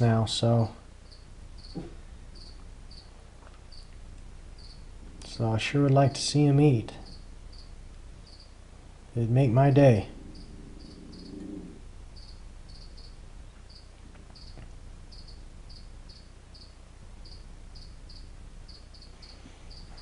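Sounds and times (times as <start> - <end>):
cricket chirping: 1.0 - 4.0, 4.6 - 5.0, 7.0 - 8.6, 10.1 - 20.0.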